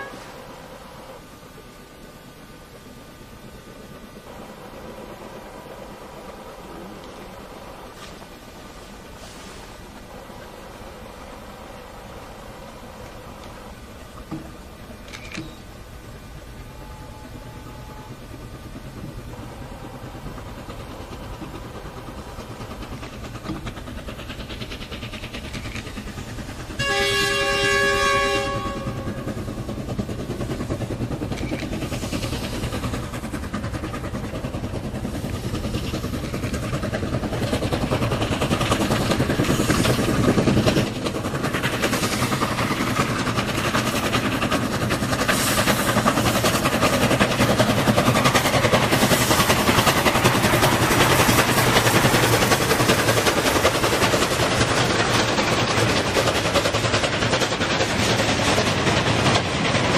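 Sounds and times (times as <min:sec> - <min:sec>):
locomotive whistle: 0:00.0 - 0:01.2, 0:16.4 - 0:18.4, 0:26.7 - 0:29.6
steam locomotives working hard: 0:00.0 - 0:59.9.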